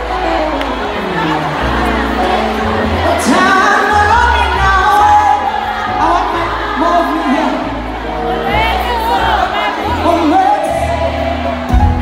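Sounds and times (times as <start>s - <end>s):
live band music: 0.0s - 12.0s
woman singing lead: 0.0s - 12.0s.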